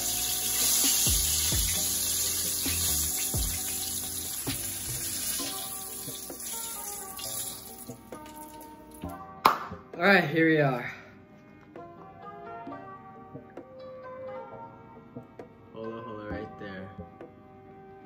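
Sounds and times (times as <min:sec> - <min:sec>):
fish frying in hot oil: 0:00.0 - 0:07.8
background music: 0:00.0 - 0:18.0.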